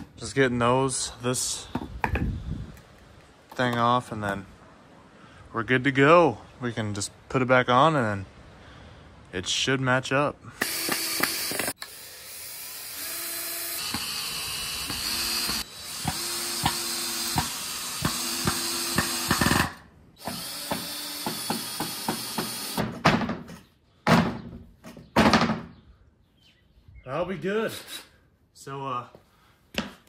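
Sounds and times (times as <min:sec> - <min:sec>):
cordless drill whining: 0:10.6 - 0:22.8.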